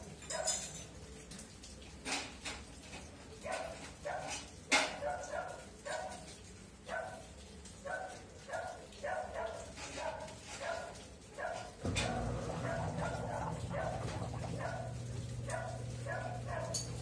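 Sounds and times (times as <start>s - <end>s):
dog barking: 0.3s - 0.6s, 3.4s - 17.0s
washing machine humming: 6.6s - 17.0s.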